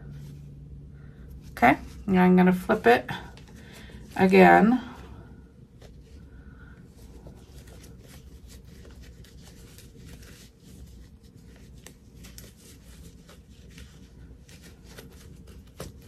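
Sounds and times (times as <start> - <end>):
fabric rustling and scratching: 6.9 - 16.0.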